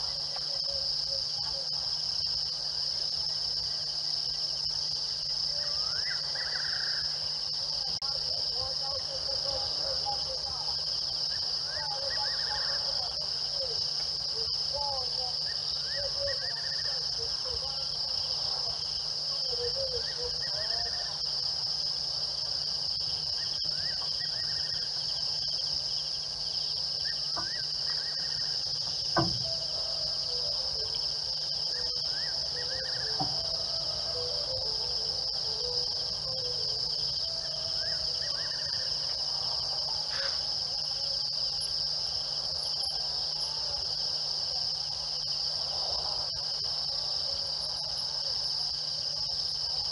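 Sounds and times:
crickets and insects chirping: 0.0 - 49.9
sharp knock: 29.1 - 29.5
faint warbling calls: 29.4 - 39.5.

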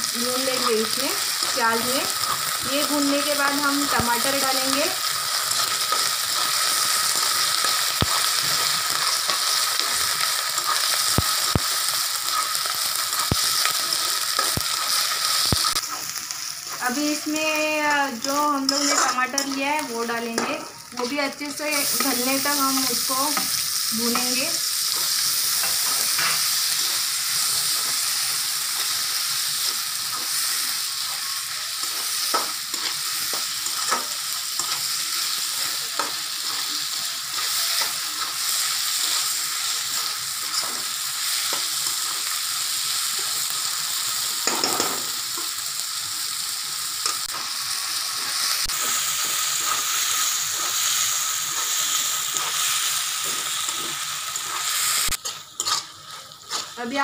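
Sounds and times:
vegetables sizzling in hot oil: 0.0 - 57.0
spoon clicking and scraping pan: 18.2 - 26.9, 49.6 - 56.8.

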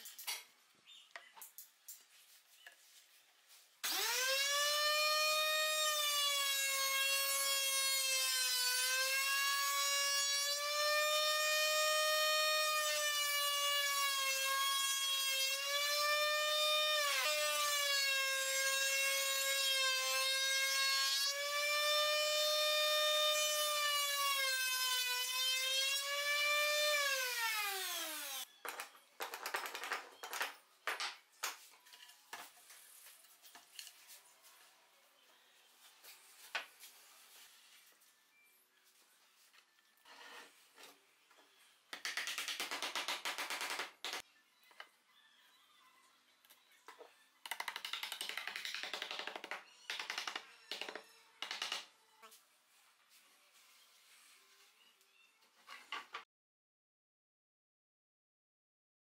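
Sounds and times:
router motor whining: 3.8 - 7.4.

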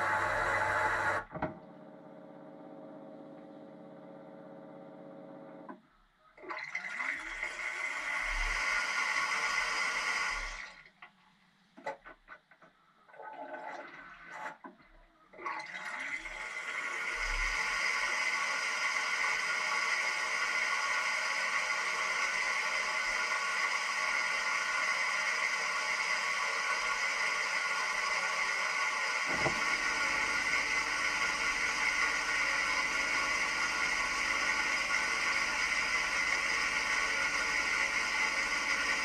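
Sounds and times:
pump hum: 0.0 - 5.8, 16.2 - 39.0
water spraying in dishwasher: 29.3 - 36.8.

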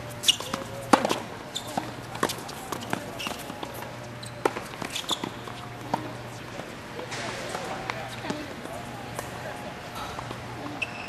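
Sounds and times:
racket striking tennis ball: 0.2 - 3.8
tennis ball bouncing: 0.2 - 6.2.

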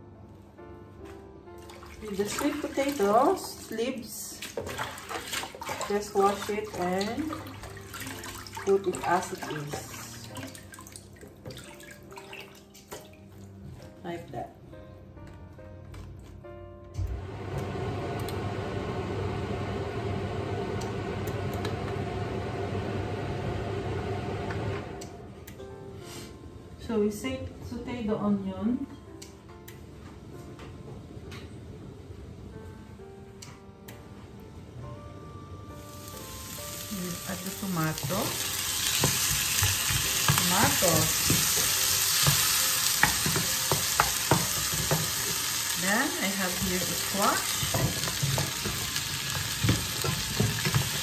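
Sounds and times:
kitchen fan humming: 35.8 - 51.0
vegetables sizzling in a frying pan: 35.8 - 51.0.

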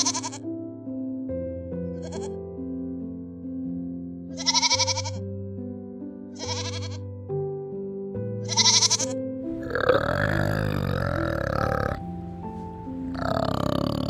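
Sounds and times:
goat kid bleating: 0.0 - 0.4, 2.0 - 2.3, 4.3 - 5.2, 6.4 - 7.0, 8.5 - 9.2
piano background music: 0.0 - 14.0
orangutan rasping call: 9.6 - 12.0, 13.1 - 14.0.

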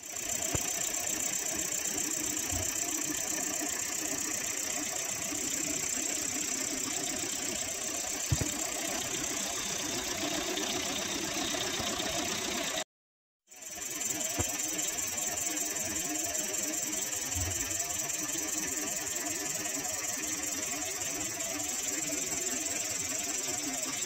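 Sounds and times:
solenoid engine clattering: 0.0 - 12.8.

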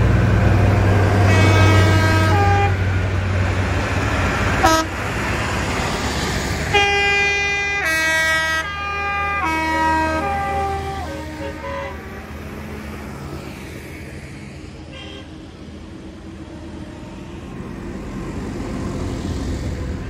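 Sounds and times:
diesel tractor engines droning: 0.0 - 20.0
horn playing a tune: 6.7 - 12.2.

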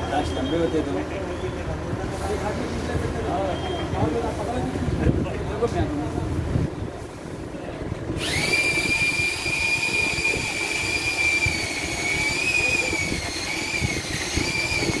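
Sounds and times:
pole saw motor whining: 8.2 - 15.0.

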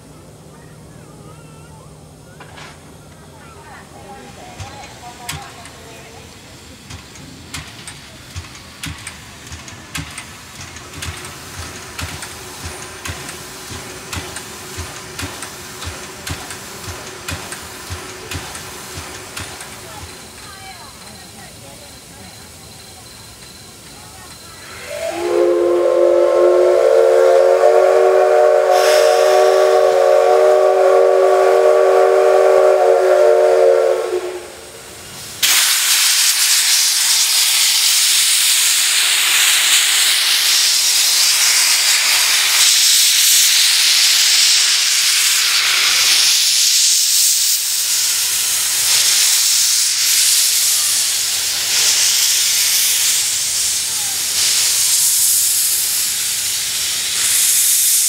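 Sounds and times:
loud hiss of steam: 0.0 - 58.0
steam locomotive whistle: 24.6 - 34.8.

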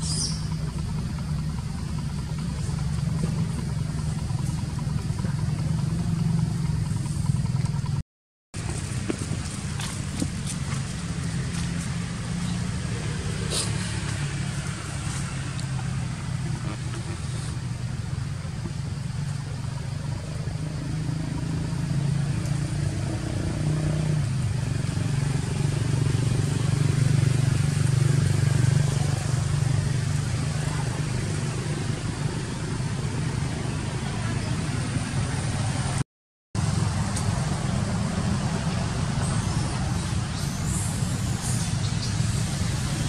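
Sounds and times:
steady low rumble: 0.0 - 8.0.

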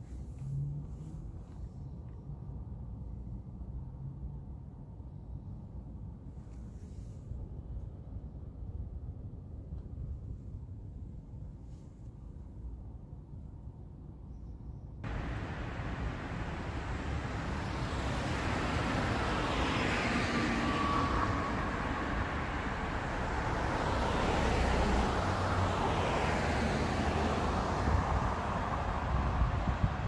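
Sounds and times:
cars passing on street: 0.0 - 4.6, 15.0 - 30.0.

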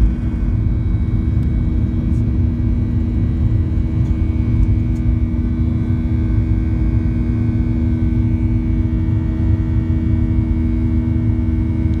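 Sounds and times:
jet engines rumbling in cabin: 0.0 - 12.0.

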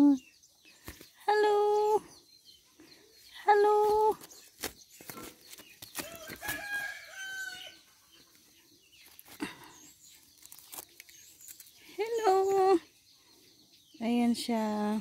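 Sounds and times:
knocks and scuffs of handling: 4.2 - 6.7
rooster crowing: 6.0 - 7.8.

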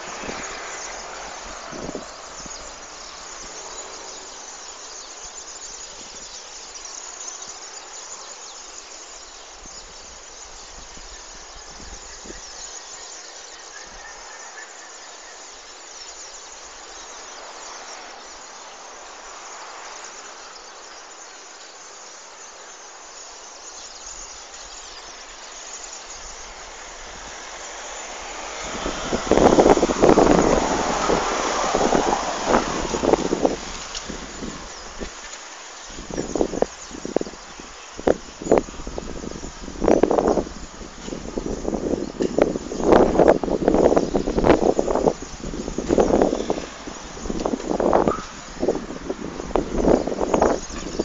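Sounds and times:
vehicle travel noise: 25.1 - 36.7, 38.1 - 51.0.

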